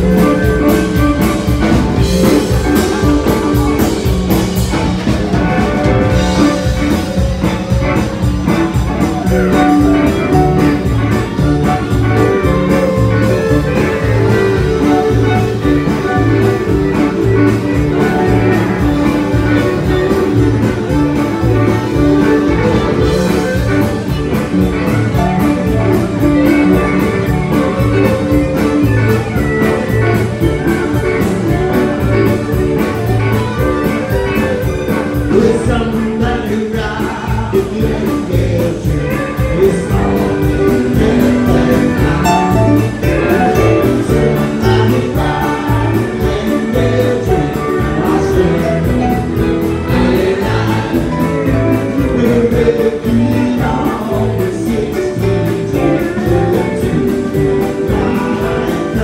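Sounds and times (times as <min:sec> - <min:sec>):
live band playing: 0:00.0 - 0:59.0
lead vocal singing: 0:35.2 - 0:59.0.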